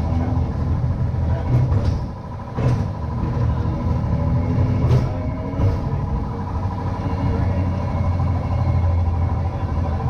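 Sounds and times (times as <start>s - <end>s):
rail clacks: 0.0s - 10.0s
streetcar wheels rumbling: 0.0s - 10.0s.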